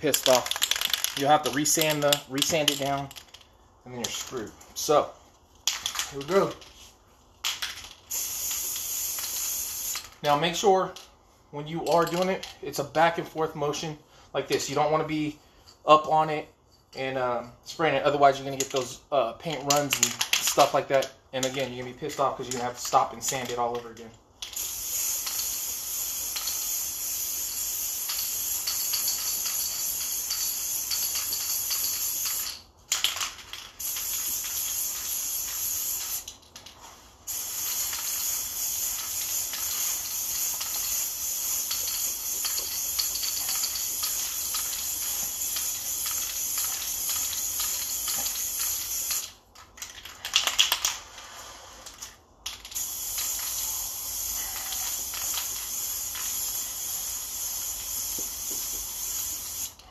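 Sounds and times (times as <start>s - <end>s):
spray can mixing ball rattle: 0.0s - 11.0s, 18.5s - 59.9s
spray can hissing: 8.0s - 10.2s, 24.5s - 33.2s, 33.8s - 49.4s, 52.6s - 59.8s.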